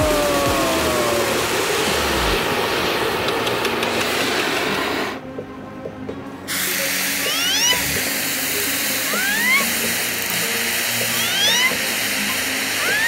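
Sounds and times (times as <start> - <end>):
gas torch flame hissing: 0.0 - 5.2, 6.5 - 13.0
short rising whistling tones: 7.2 - 8.1, 9.1 - 9.9, 11.1 - 13.0.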